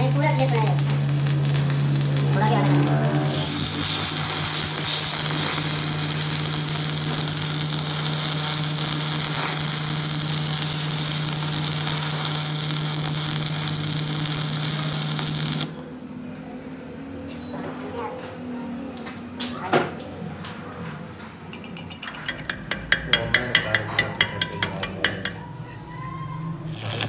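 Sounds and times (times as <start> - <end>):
welding arc crackling: 0.0 - 16.0, 26.6 - 27.0
low steady hum: 0.0 - 17.0.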